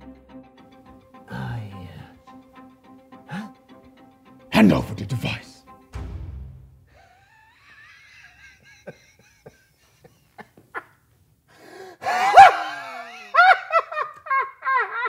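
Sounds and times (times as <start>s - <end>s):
man laughing: 6.9s - 11.0s, 12.0s - 15.0s.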